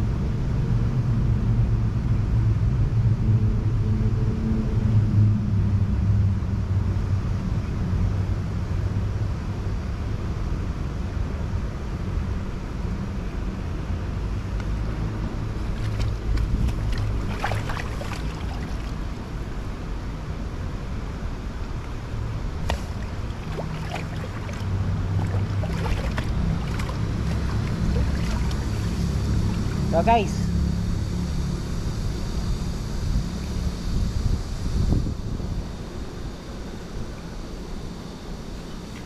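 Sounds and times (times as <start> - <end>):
river water running: 14.9 - 20.4, 21.6 - 30.7, 38.4 - 39.0
wind on microphone: 33.0 - 35.7.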